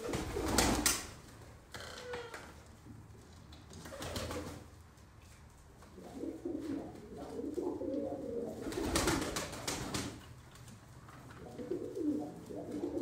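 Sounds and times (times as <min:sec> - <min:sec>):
pigeons cooing: 0:06.0 - 0:09.4, 0:11.4 - 0:13.0.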